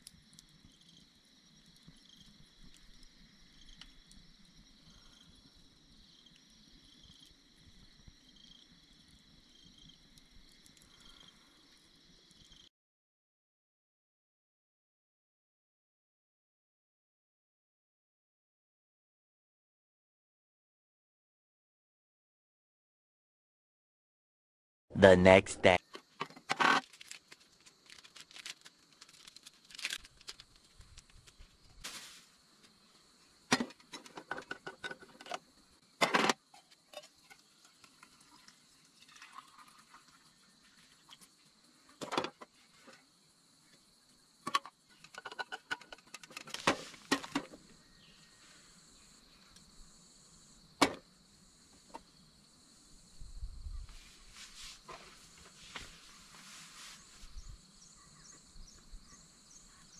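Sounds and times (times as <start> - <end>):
high insect drone: 0.2 - 12.7, 46.6 - 59.9.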